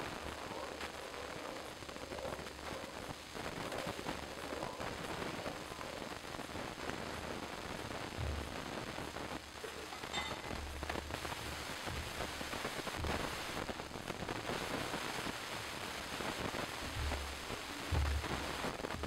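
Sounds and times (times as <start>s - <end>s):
faint clink: 9.8s - 10.6s.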